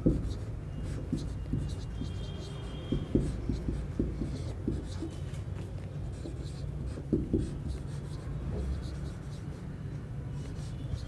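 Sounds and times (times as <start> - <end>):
marker scratching on whiteboard: 0.0 - 11.0
marker squeak: 0.1 - 5.5, 10.4 - 11.0.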